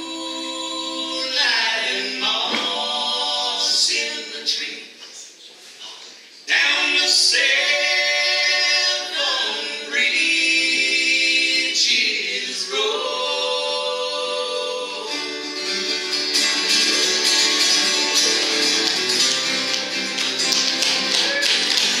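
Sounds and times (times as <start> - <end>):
people singing in harmony: 0.0 - 4.9, 6.5 - 22.0
acoustic guitar strumming: 14.5 - 22.0.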